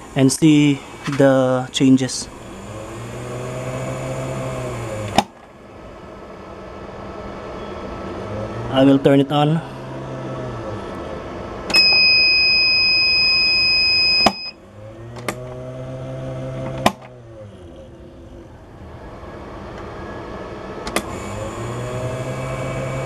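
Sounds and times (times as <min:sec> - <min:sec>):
water pump humming: 0:00.0 - 0:06.0, 0:21.0 - 0:23.0
loud high beep: 0:11.7 - 0:14.6.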